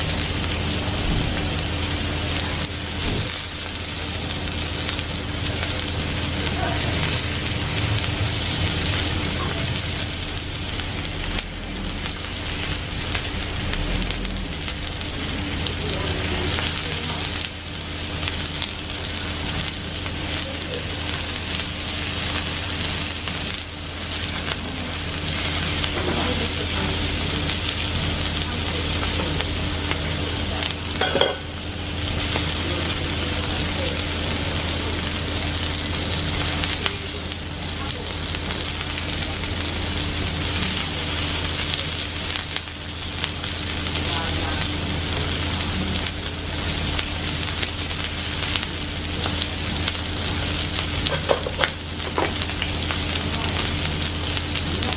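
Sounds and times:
steady low hum: 0.0s - 51.1s
meat sizzling on grill: 0.0s - 54.9s.

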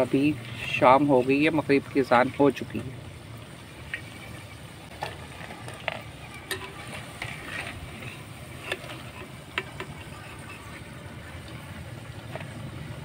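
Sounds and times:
food sizzling in oil: 0.0s - 13.0s.

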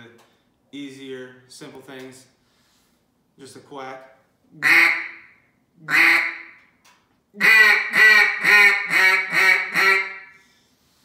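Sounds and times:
duck call quacking: 4.6s - 6.6s, 7.4s - 10.4s.

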